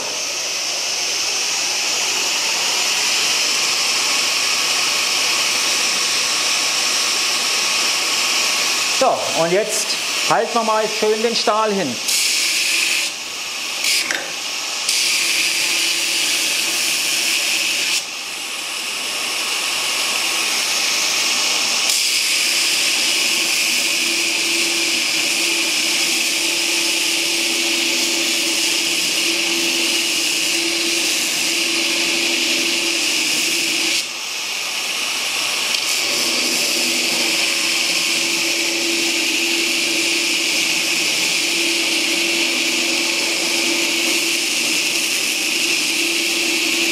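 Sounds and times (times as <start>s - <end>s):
motor hum under load: 0.0s - 46.9s
belt grinder grinding steel: 13.8s - 18.1s, 21.4s - 34.1s, 35.4s - 46.9s.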